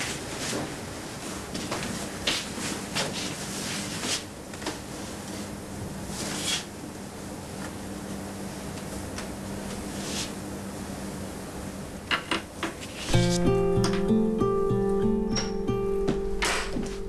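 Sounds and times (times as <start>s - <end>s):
low steady hum: 13.1s - 17.0s.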